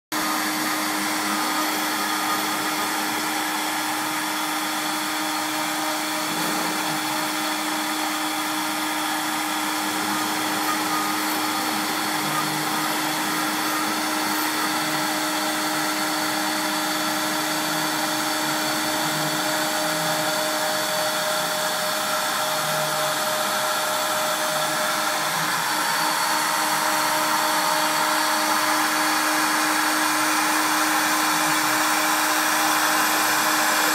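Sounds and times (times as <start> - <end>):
router bit cutting wood: 0.1 - 33.9
router spindle whine: 0.1 - 33.9.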